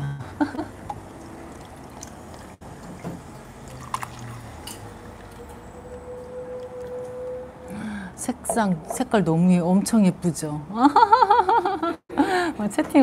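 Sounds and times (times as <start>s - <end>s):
liquid trickling into a cup: 0.9s - 4.7s.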